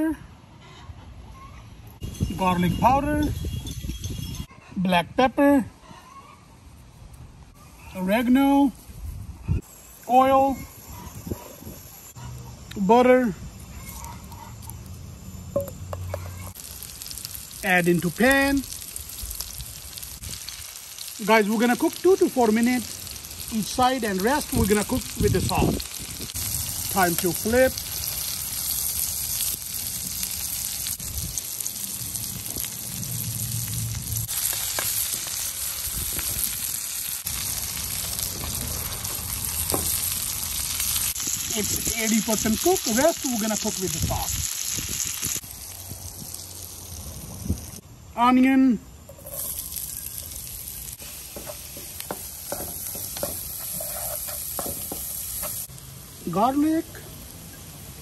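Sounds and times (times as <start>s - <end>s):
chicken sizzling in a pan: 16.0s - 47.8s, 49.2s - 58.0s
wooden spatula scraping a pan: 51.3s - 55.6s.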